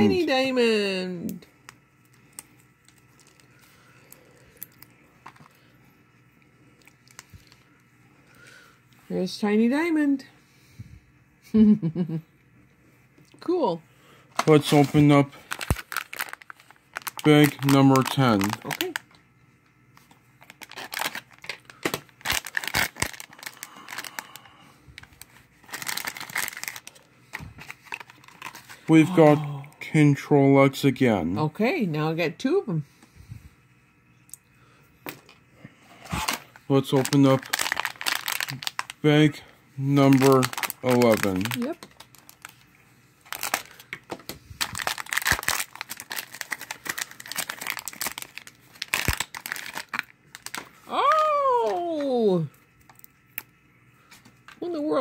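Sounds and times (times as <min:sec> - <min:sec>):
foil bag crinkling: 0:01.7 - 0:05.7, 0:06.7 - 0:07.8, 0:14.4 - 0:19.2, 0:19.9 - 0:29.1, 0:36.1 - 0:52.0.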